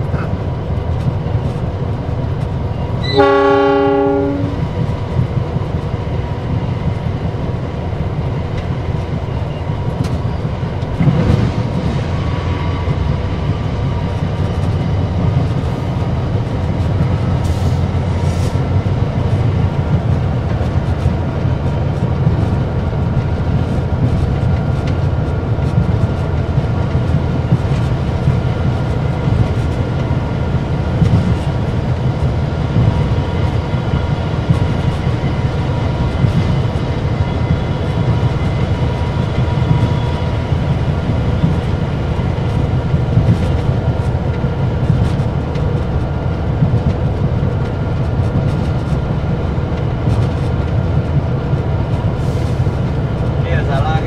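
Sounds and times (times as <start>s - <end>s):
locomotive engine and wheels rumble: 0.0s - 54.0s
locomotive horn: 3.0s - 4.6s.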